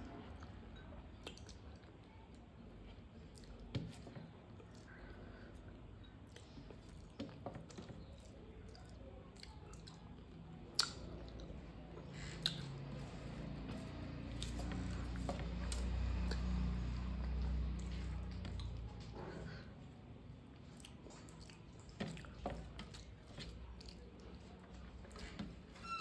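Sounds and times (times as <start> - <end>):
wet chewing of rice: 0.0 - 25.7.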